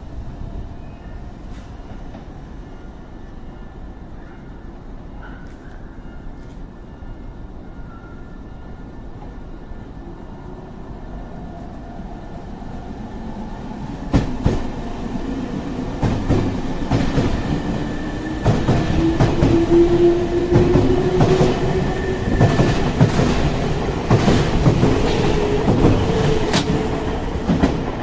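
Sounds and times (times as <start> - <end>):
train rumble: 8.9 - 28.0.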